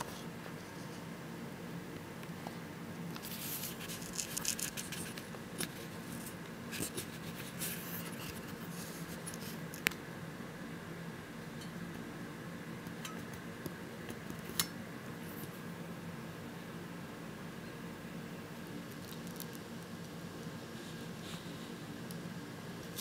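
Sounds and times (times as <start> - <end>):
steady low hum: 0.0 - 23.0
scratchy rustling: 3.2 - 9.6.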